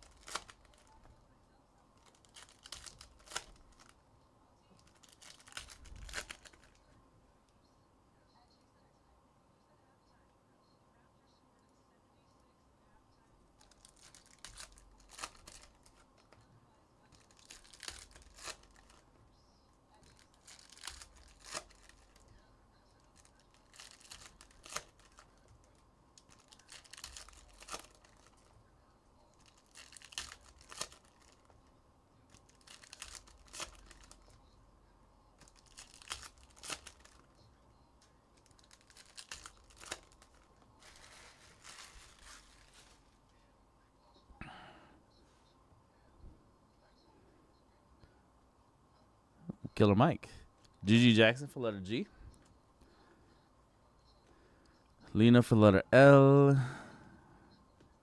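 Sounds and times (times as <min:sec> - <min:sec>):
foil wrappers tearing and crinkling: 0:00.0 - 0:01.0, 0:02.0 - 0:03.9, 0:04.8 - 0:06.8, 0:13.6 - 0:16.1, 0:17.1 - 0:19.0, 0:20.0 - 0:22.3, 0:23.0 - 0:28.5, 0:29.3 - 0:31.6, 0:32.3 - 0:34.4, 0:35.4 - 0:37.3, 0:38.4 - 0:43.0.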